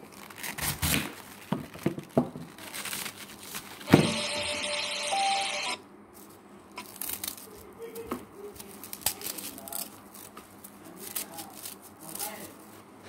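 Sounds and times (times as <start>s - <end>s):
knife slicing cabbage leaves: 0.0s - 3.9s, 6.8s - 12.6s.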